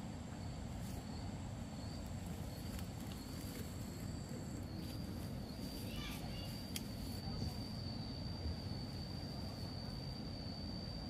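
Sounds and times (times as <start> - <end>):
insects calling: 0.0 - 11.0.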